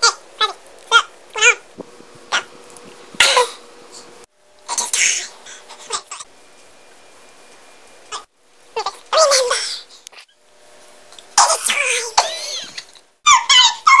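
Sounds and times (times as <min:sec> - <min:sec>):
girls squealing and yelping: 0:13.3 - 0:14.0.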